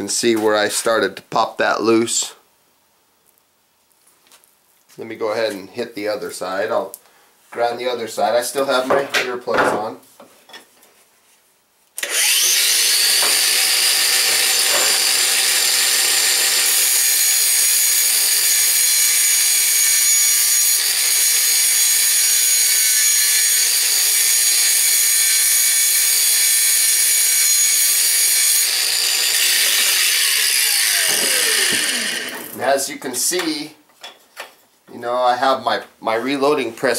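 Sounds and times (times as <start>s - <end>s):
grinder winding down whine: 12.0s - 32.6s
angle grinder grinding steel: 12.0s - 32.8s.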